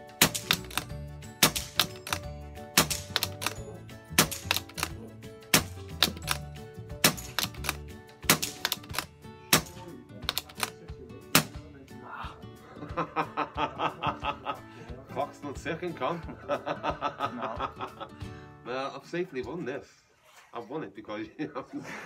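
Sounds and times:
sharp percussive hits: 0.2s - 2.2s, 2.8s - 4.9s, 7.0s - 9.0s.

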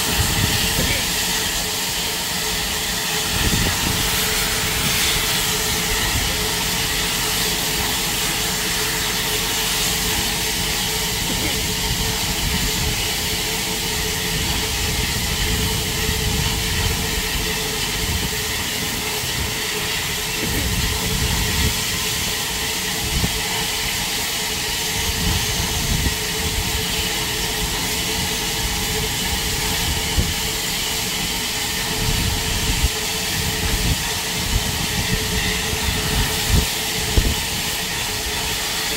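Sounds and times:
steam locomotive hissing: 0.0s - 38.9s.

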